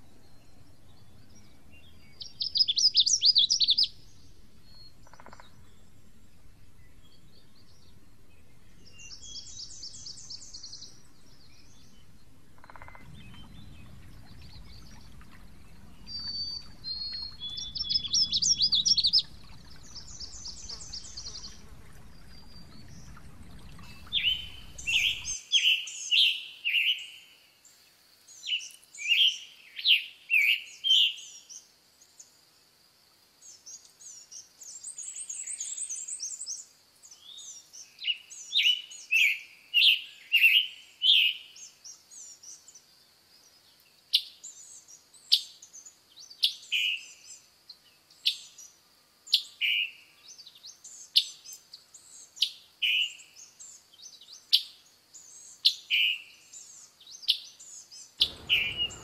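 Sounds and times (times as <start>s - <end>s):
bird singing burry phrases: 12.6s - 25.8s, 58.2s - 59.0s.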